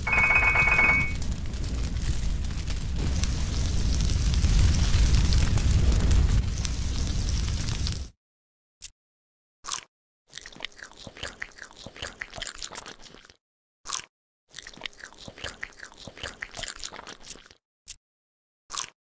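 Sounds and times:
crisp crunching eating: 9.7s - 17.6s, 18.7s - 19.0s.

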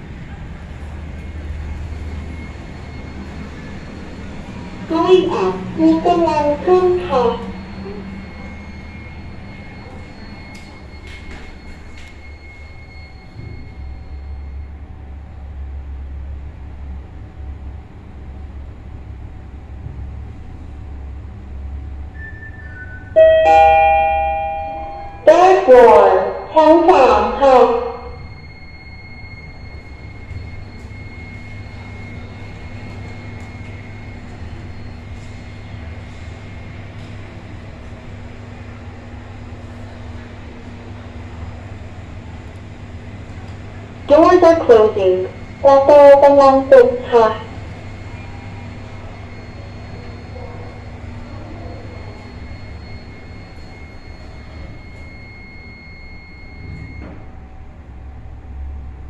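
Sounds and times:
elevator machinery humming: 0.0s - 59.0s
faint high whine: 21.9s - 36.5s, 44.1s - 58.7s.

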